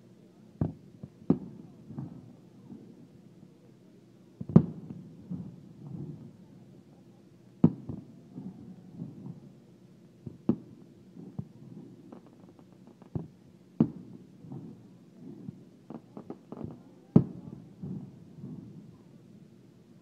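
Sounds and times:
firework shells booming: 4.4s - 6.4s, 7.6s - 9.6s, 10.2s - 19.0s
firework crackles: 4.4s - 19.4s.

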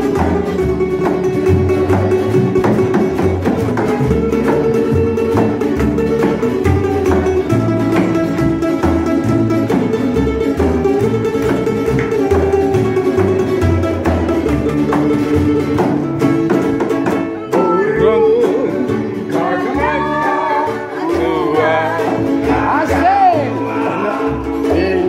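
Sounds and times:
acoustic band playing: 0.0s - 25.0s
person singing: 17.4s - 25.0s.

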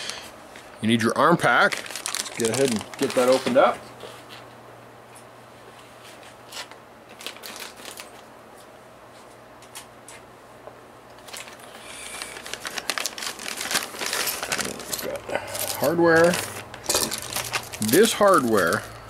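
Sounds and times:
plastic bag crinkling: 1.4s - 3.8s, 6.6s - 8.3s, 11.2s - 19.0s.

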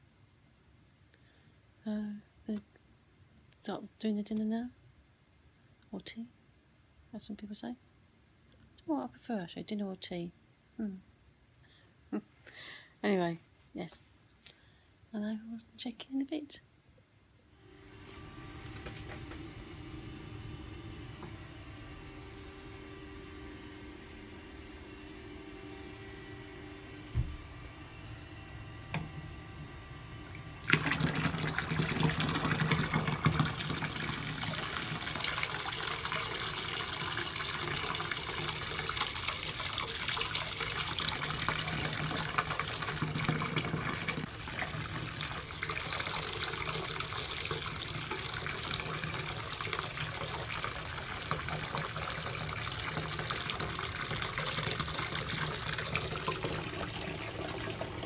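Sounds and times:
bath tap water pouring: 30.3s - 58.0s.

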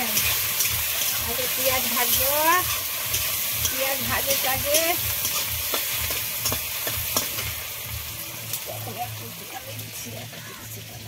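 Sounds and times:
metal spatula scraping a pan: 0.0s - 7.6s
onions sizzling in hot oil: 0.0s - 11.0s.

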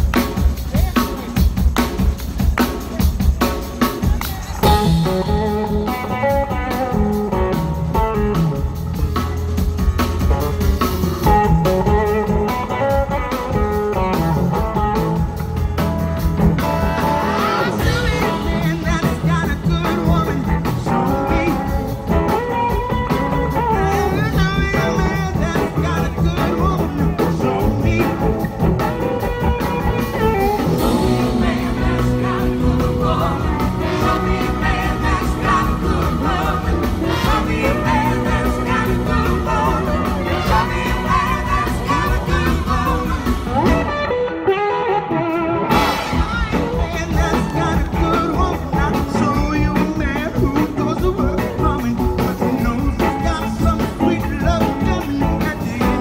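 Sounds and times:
live blues-rock band: 0.0s - 56.0s
person singing: 17.0s - 28.7s, 29.6s - 56.0s.

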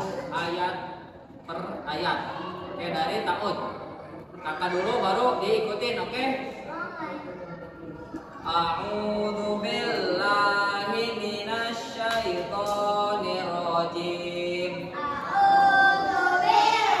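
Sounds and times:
children singing in unison: 14.8s - 17.0s.

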